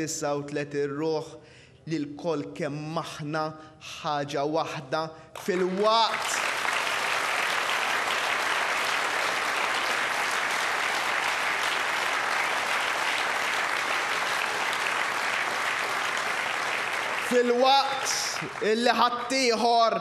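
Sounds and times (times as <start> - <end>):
crowd applauding: 5.4 - 20.0.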